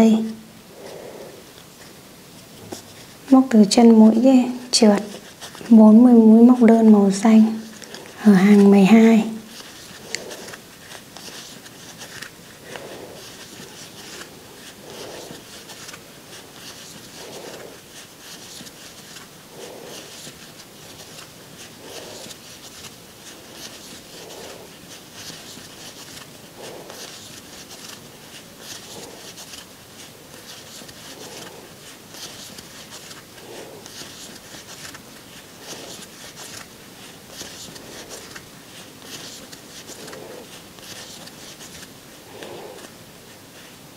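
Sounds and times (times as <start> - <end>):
crochet hook and yarn rustling: 0.0 - 43.9.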